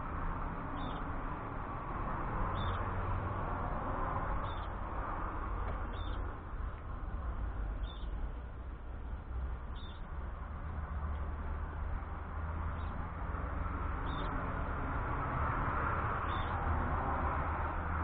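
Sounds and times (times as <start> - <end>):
small bird chirping: 0.8 - 1.1, 2.5 - 2.9, 4.4 - 4.8, 5.9 - 6.3, 7.8 - 8.1, 9.7 - 10.1, 12.7 - 13.0, 14.0 - 14.4, 16.2 - 16.6.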